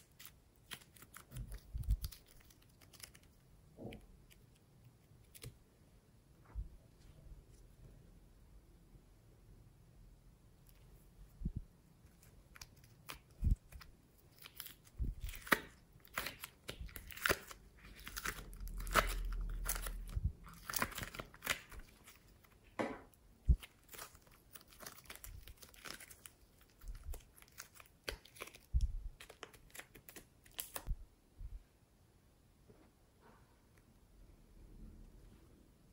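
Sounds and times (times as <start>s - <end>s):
clay squeezed sticky crackles: 0.0s - 5.6s, 11.9s - 22.6s, 23.4s - 31.0s.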